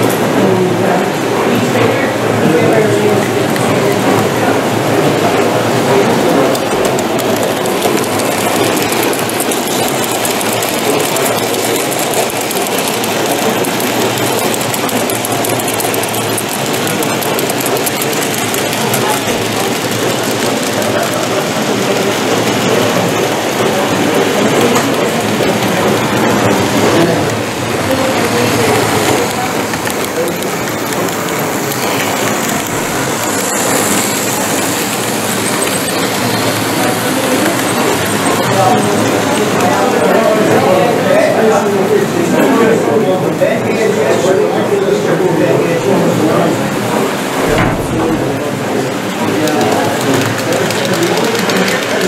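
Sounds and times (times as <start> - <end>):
hall noise: 0.0 - 52.0
model train running: 0.0 - 52.0
wheels clicking over rail joints: 3.5 - 41.7.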